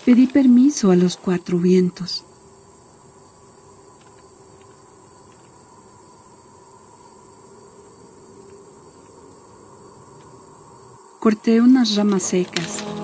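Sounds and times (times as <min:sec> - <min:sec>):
high-pitched insect chorus: 0:00.1 - 0:13.0
faint ticks: 0:03.9 - 0:05.6, 0:10.1 - 0:10.4.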